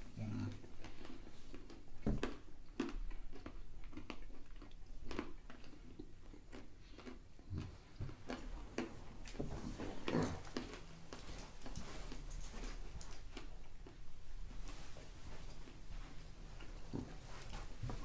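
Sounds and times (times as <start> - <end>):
person chewing crunchy food: 0.2 - 14.5.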